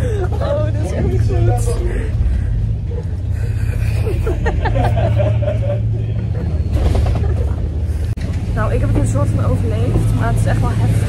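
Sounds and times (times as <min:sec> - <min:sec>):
women laughing: 0:00.0 - 0:08.1
boat engine drone: 0:00.0 - 0:11.0.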